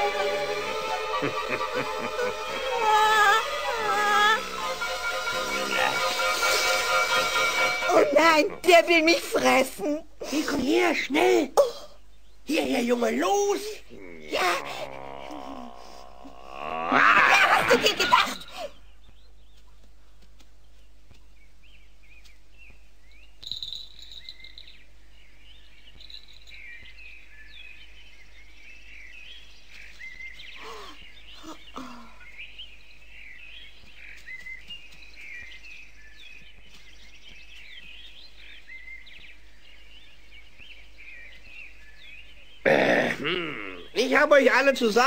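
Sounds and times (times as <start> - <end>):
small birds chirping: 0.0 - 45.0.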